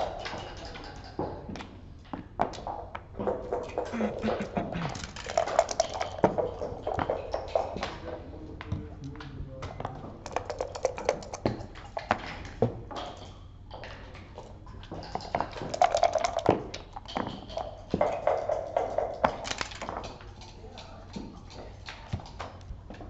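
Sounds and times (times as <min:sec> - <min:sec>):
game pieces clicking on table: 0:04.9 - 0:06.5, 0:10.3 - 0:11.8.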